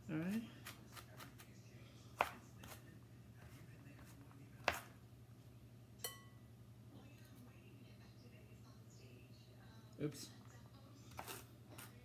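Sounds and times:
knife chopping on plastic board: 2.2s - 2.8s, 3.4s - 4.9s.

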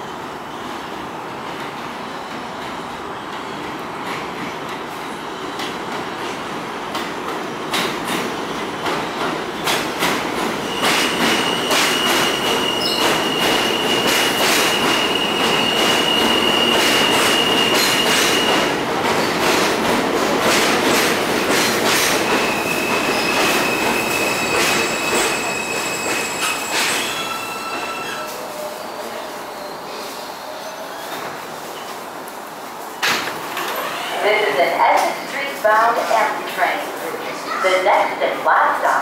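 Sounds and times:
subway train wheels clattering: 0.0s - 39.0s
train brakes squealing: 10.6s - 18.6s, 22.3s - 32.0s.

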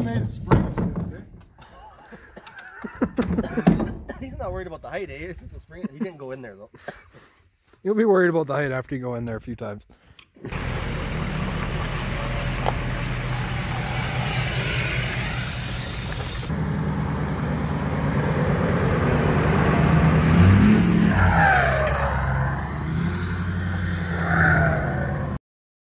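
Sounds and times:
pickup truck engine droning: 10.5s - 25.4s.

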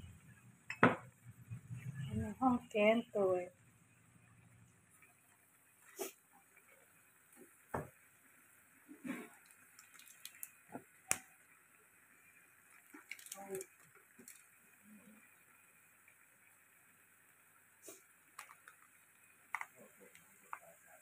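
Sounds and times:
water bubbling in a pan: 0.0s - 21.0s
oil popping and spitting: 8.9s - 11.3s, 12.7s - 14.6s.

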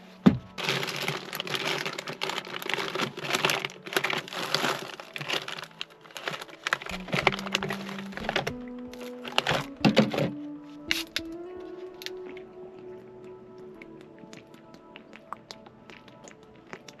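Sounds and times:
plastic wrappers crinkling: 0.0s - 12.4s.

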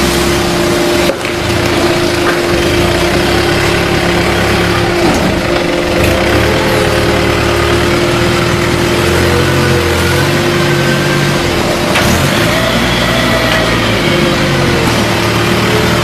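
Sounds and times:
baler machine hum: 0.0s - 16.0s
low rumble: 0.3s - 16.0s.

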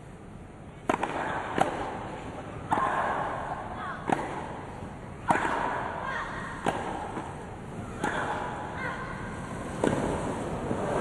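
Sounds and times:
tennis balls struck by rackets: 0.8s - 8.8s, 9.7s - 10.3s.

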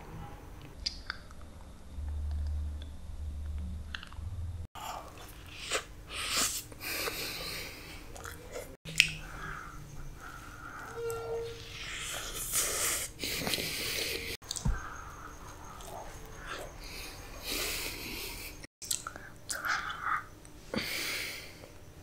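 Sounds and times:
low hum: 0.0s - 5.0s
wet chewing: 8.1s - 9.5s.

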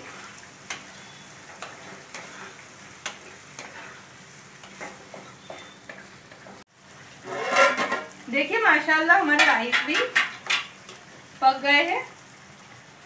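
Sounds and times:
metal spatula scraping pan: 0.0s - 5.8s, 7.2s - 8.2s
vegetables sizzling in oil: 0.0s - 13.0s.

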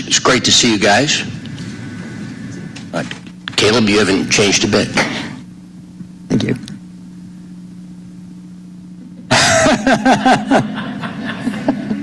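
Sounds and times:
low hum: 0.0s - 12.0s
group of people laughing: 9.3s - 12.0s.

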